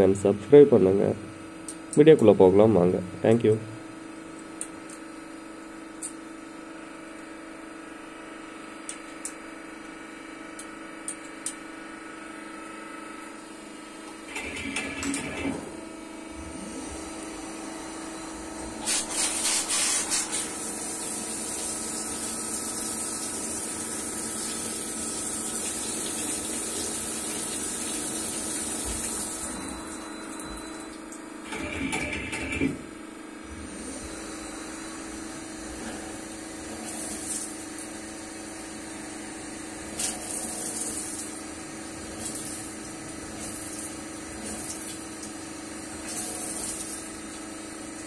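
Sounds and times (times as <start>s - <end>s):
coolant spray hissing: 18.8s - 23.9s.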